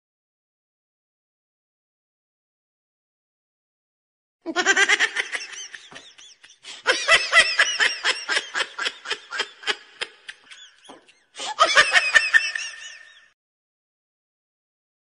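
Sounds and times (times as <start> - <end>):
person laughing out loud: 4.5 - 13.3.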